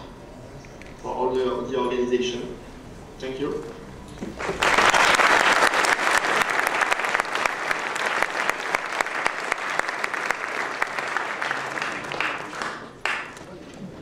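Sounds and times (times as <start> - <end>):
audience applauding: 4.4 - 13.4.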